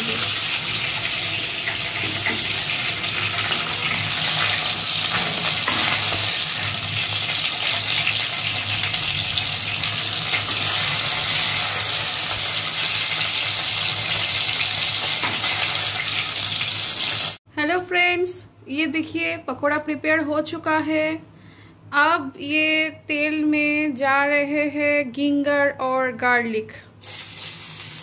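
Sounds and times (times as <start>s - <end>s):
food deep-frying in oil: 0.0s - 17.4s, 27.0s - 28.0s.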